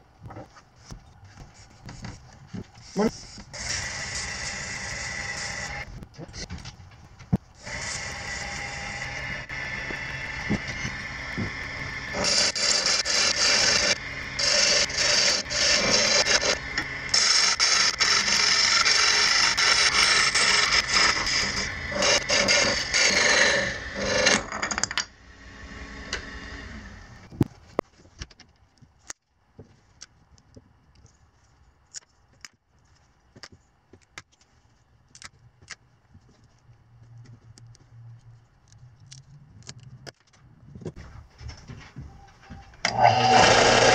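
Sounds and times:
wood lathe running: 0:03.5 - 0:05.9, 0:07.6 - 0:24.6, 0:42.9 - 0:43.9
turning tool scraping wood: 0:07.6 - 0:24.6, 0:42.9 - 0:43.9.

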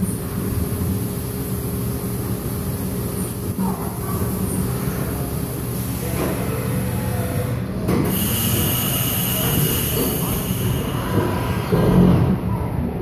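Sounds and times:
spindle whine and hiss: 0:08.1 - 0:12.1.

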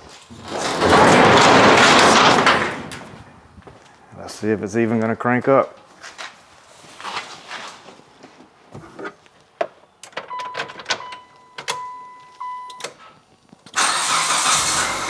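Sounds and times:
car engine cranking and starting: 0:13.7 - 0:15.0.

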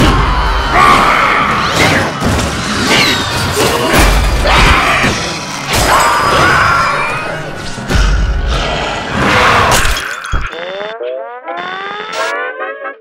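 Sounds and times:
cartoon music: 0:10.5 - 0:13.0.

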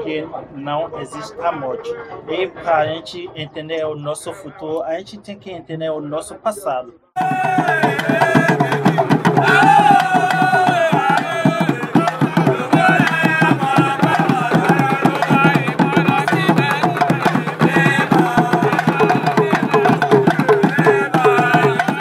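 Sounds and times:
hand drums in fast rhythm: 0:07.2 - 0:22.0
men singing in a group: 0:07.2 - 0:22.0.

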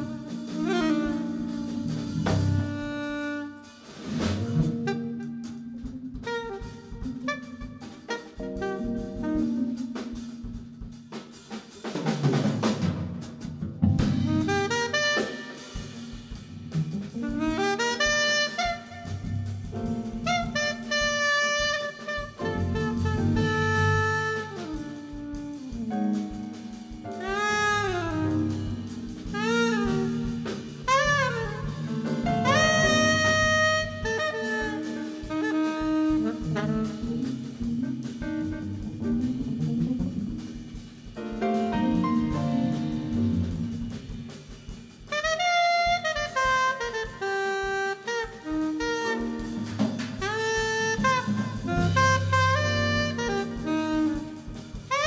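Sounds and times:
electric bass: 0:00.0 - 0:02.9, 0:04.0 - 0:06.2, 0:13.7 - 0:14.8, 0:18.9 - 0:20.8, 0:22.4 - 0:24.5, 0:25.3 - 0:34.0, 0:36.2 - 0:44.9, 0:49.4 - 0:54.7
soprano saxophone melody: 0:00.0 - 0:11.0, 0:14.0 - 0:55.0
drum kit: 0:00.0 - 0:55.0.

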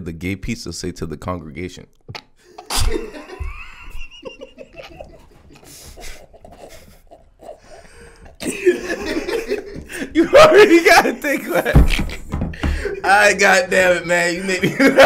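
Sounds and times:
men laughing and wheezing: 0:02.4 - 0:13.1, 0:14.4 - 0:15.0.

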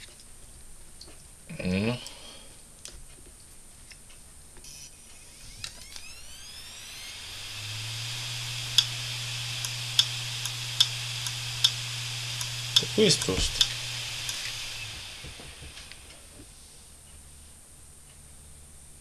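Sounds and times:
hard drive spinning up: 0:04.7 - 0:16.6.

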